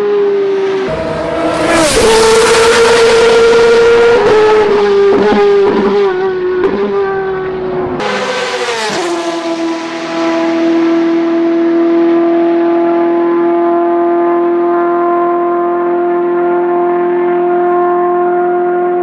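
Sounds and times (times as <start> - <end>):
racing car engine revving: 0.0 - 19.0.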